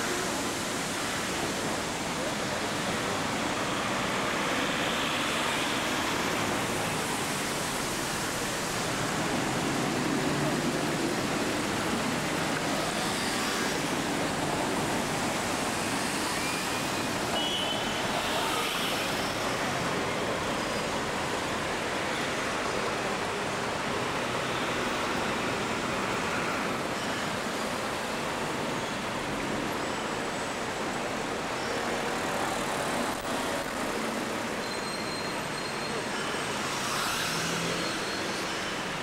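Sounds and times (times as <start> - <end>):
cars passing: 35.9 - 39.0.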